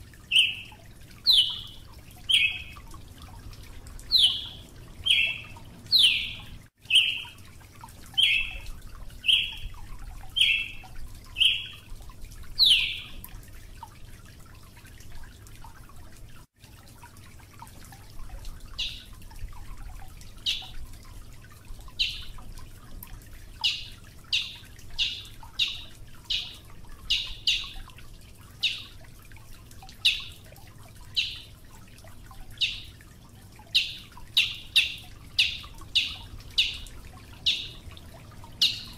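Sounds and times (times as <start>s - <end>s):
songbird call notes: 0.3s - 2.8s, 4.1s - 7.4s, 8.2s - 8.6s, 9.2s - 9.7s, 10.4s - 10.8s, 11.4s - 11.8s, 12.6s - 13.2s, 18.8s - 19.1s, 22.0s - 22.3s, 23.6s - 27.8s, 28.6s - 28.9s, 30.0s - 30.3s, 31.2s - 31.5s, 32.6s - 32.9s, 33.8s - 37.8s, 38.6s - 38.9s.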